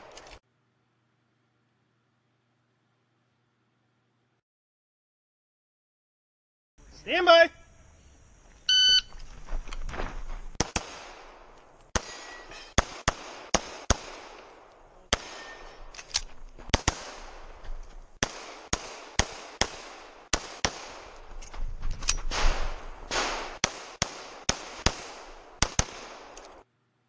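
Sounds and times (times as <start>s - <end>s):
rapid pistol fire: 10.6s - 15.6s, 16.7s - 17.6s, 18.2s - 21.3s, 22.3s - 26.5s.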